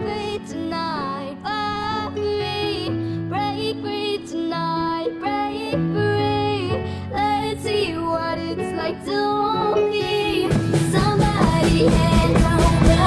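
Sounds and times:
girl singing into a microphone: 0.0s - 13.0s
band playing: 10.4s - 13.0s.

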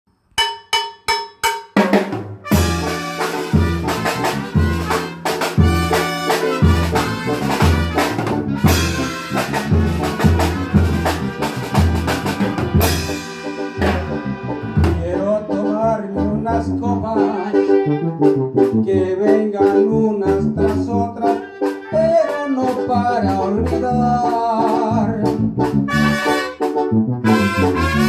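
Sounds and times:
drum beat: 0.4s - 14.2s
bass notes: 1.9s - 28.0s
saxophone: 2.5s - 15.1s, 17.2s - 18.7s, 21.2s - 22.9s, 25.9s - 28.0s
electronic keyboard: 2.5s - 28.0s.

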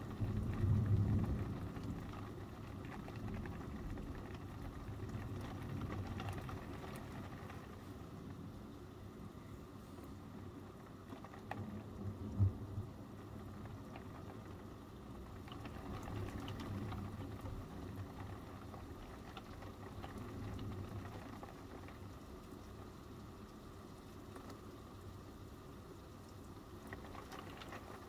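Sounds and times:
distant thunder rumbles: 0.0s - 7.7s
rain pattering: 0.0s - 28.0s.

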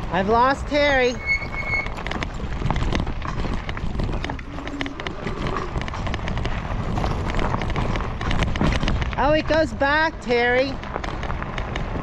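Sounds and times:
bike tyres rumbling on dirt: 0.0s - 12.0s
wind on microphone: 0.0s - 12.0s.

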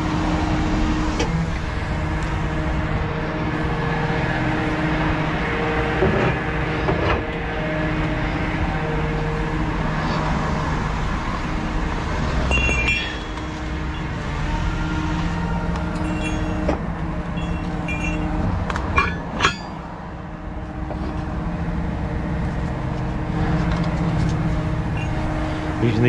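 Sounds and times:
heavy diesel engines rumbling: 0.0s - 26.0s
road traffic: 0.0s - 26.0s
sharp metallic knocks: 12.5s - 14.1s, 17.4s - 19.9s.

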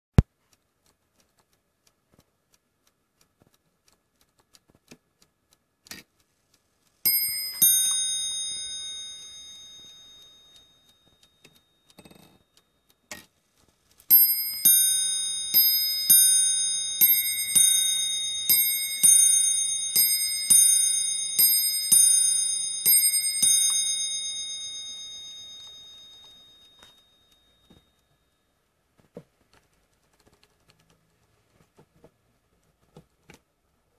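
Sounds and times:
clock mechanism clicks: 0.2s - 28.2s
clock bell strikes: 7.1s - 12.2s, 14.1s - 28.0s.

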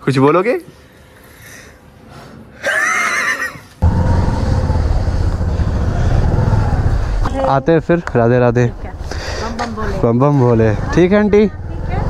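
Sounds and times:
motorcycle engine idling: 3.8s - 10.0s.

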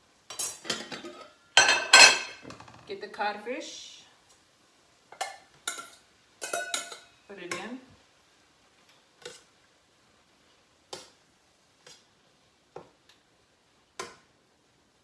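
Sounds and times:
cookware clinks and taps: 0.3s - 2.4s, 5.1s - 7.7s.

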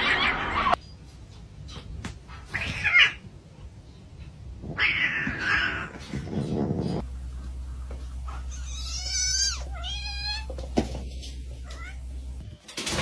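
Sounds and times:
cat meowing: 8.5s - 10.6s, 11.6s - 12.0s.

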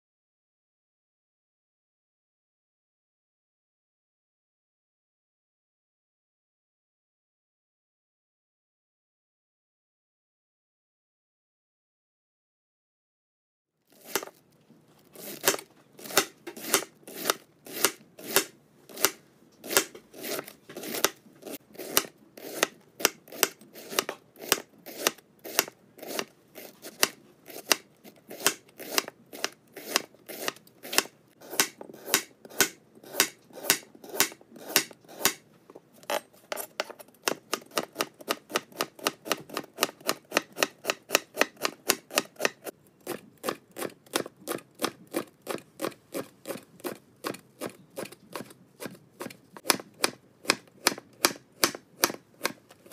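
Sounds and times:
knife chopping on cutting board: 15.2s - 35.4s, 36.0s - 52.9s.

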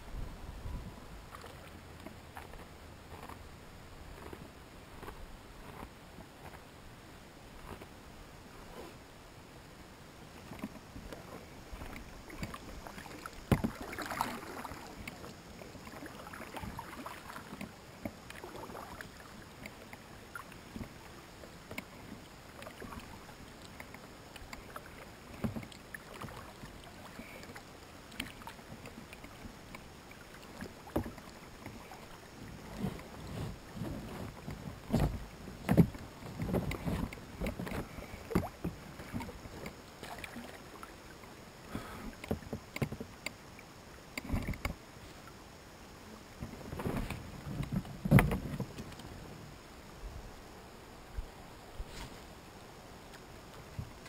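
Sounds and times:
paddle splashes and knocks: 10.4s - 43.4s, 44.1s - 44.8s, 46.4s - 49.4s.

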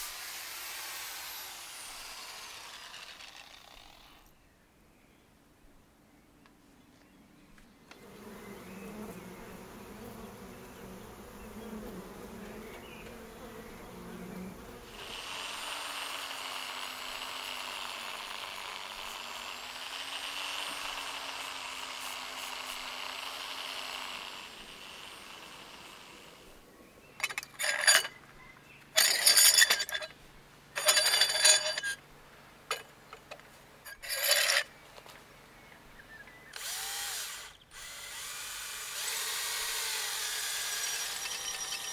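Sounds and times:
power drill bursts: 0.0s - 4.2s, 36.6s - 41.9s
honeybees buzzing: 7.9s - 26.7s, 39.0s - 41.9s
angle grinder whining: 36.6s - 41.9s.

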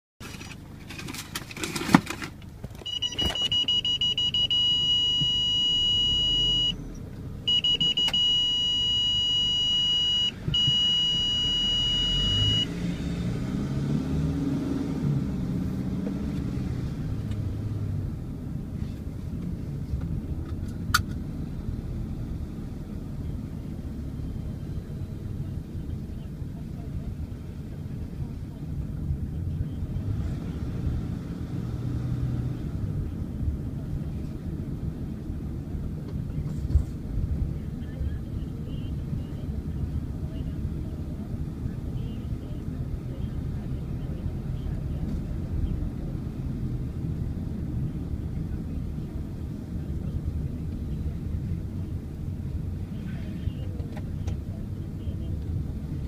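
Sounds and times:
car engine and road rumble: 0.2s - 56.0s
high-pitched electronic warning tone: 2.9s - 6.8s, 7.5s - 12.7s.

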